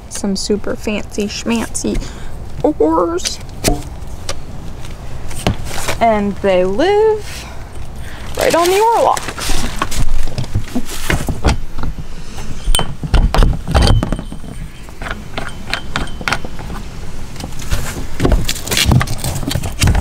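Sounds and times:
dull knocks: 0:12.8 - 0:16.7
oars clicking and clinking: 0:13.7 - 0:16.8.

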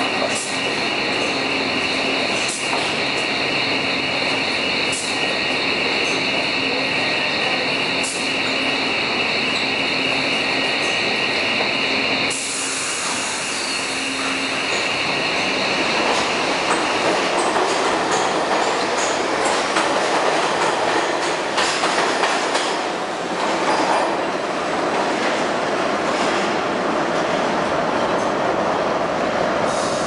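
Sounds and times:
subway train pulling out: 0:00.0 - 0:30.0
train wheel clacks: 0:15.8 - 0:24.2.

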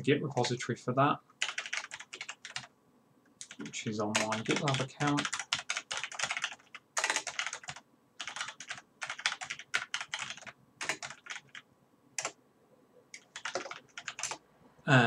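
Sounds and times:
computer keyboard typing: 0:01.4 - 0:02.7, 0:03.4 - 0:11.6, 0:12.2 - 0:12.4, 0:13.1 - 0:14.4.

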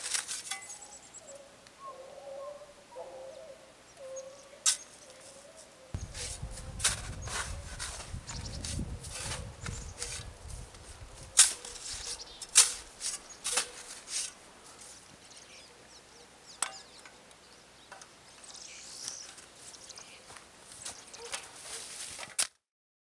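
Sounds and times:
shovel scraping packed snow: 0:00.0 - 0:00.8, 0:06.1 - 0:15.1, 0:21.4 - 0:22.3
footsteps crunching through snow: 0:06.0 - 0:15.4, 0:18.9 - 0:22.4.

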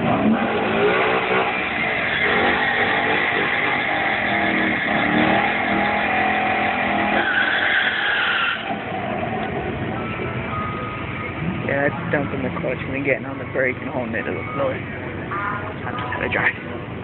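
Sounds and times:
car engine revving: 0:00.0 - 0:17.0
tyres screeching: 0:00.2 - 0:09.1.

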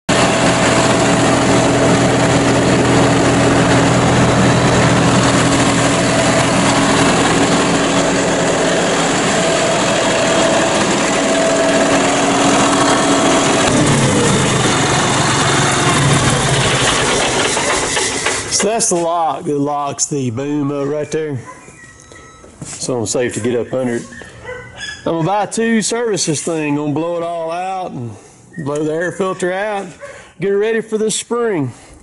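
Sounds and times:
tractor diesel engine idling: 0:00.1 - 0:19.9.

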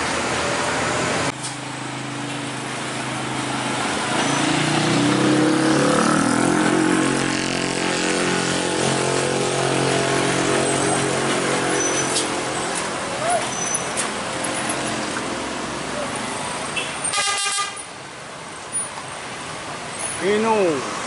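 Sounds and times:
truck diesel engine: 0:00.0 - 0:20.8.

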